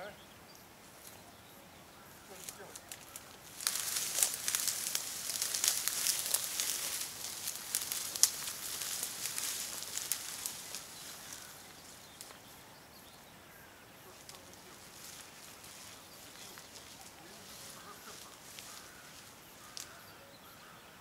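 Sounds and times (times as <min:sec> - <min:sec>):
rustling and crackling: 0:02.3 - 0:12.5, 0:14.1 - 0:20.0.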